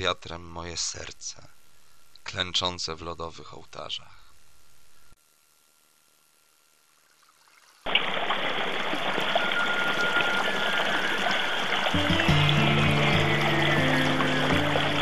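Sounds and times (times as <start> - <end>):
stream running: 7.0 - 15.0.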